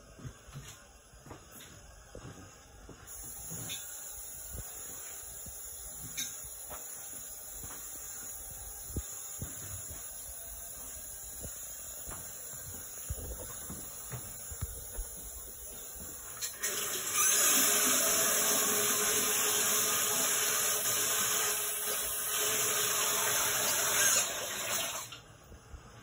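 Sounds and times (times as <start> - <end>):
water rushing in plumbing: 9.0 - 25.2.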